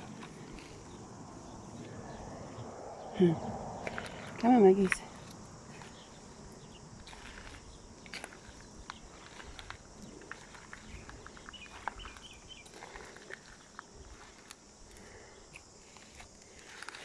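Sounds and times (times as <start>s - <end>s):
footsteps crunching on pebbles: 3.8s - 17.0s.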